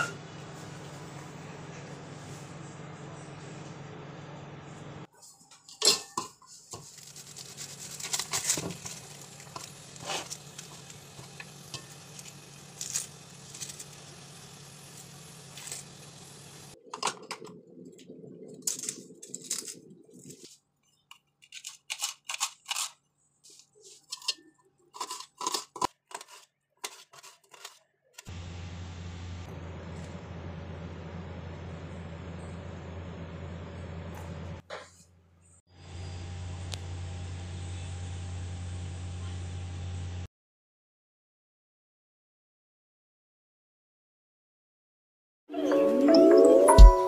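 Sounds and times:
steel plates and utensils clinking: 5.6s - 14.0s, 24.0s - 27.8s
low hum: 28.3s - 34.6s.

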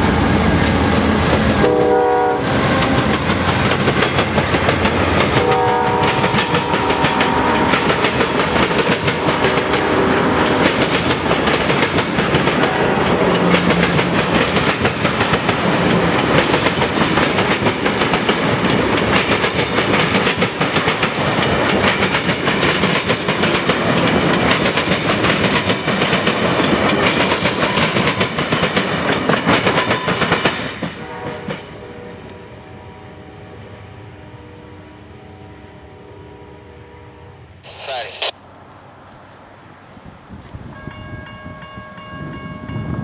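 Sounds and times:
train cars rumbling past: 0.0s - 43.0s
distant train horn: 1.5s - 2.8s, 5.3s - 10.8s, 31.0s - 37.7s
wheels clacking over rail joints: 2.6s - 31.6s.

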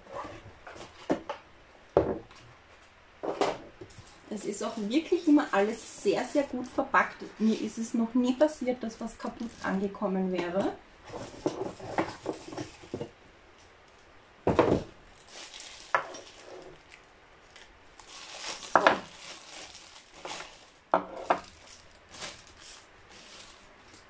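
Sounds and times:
plastic wrap rustling: 3.9s - 13.2s, 14.5s - 24.0s
cardboard rustling: 18.0s - 24.0s.

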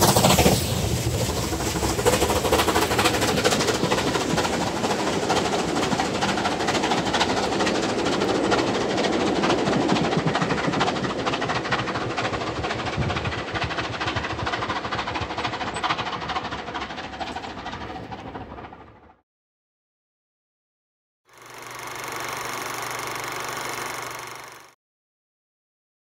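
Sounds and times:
train coaches rattling on rails: 0.0s - 19.1s.

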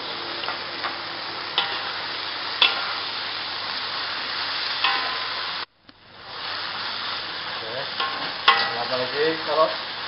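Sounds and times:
food sizzling in hot oil: 0.0s - 10.0s
spatula clinking against wok: 4.8s - 5.4s, 8.0s - 8.9s.

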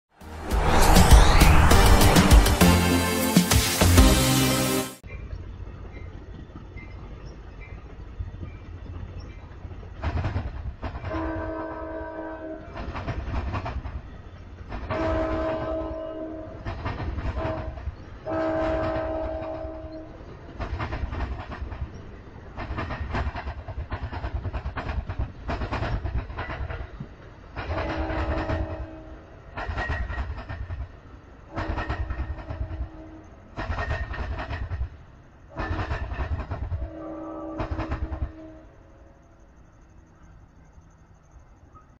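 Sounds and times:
train wheels clattering on track: 5.1s - 38.6s
train air horn blasts: 11.1s - 12.8s, 14.9s - 16.7s, 17.3s - 20.2s, 27.7s - 29.3s, 31.5s - 33.4s, 36.8s - 38.9s.

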